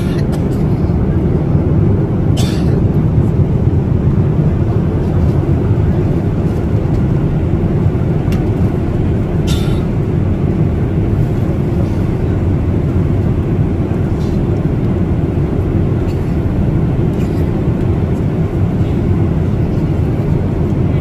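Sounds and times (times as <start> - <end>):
airliner cabin rumble: 0.0 - 21.0.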